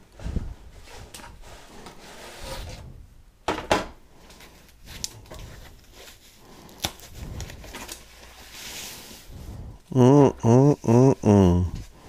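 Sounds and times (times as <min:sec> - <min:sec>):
foam wrapping crackling: 0:04.5 - 0:09.3.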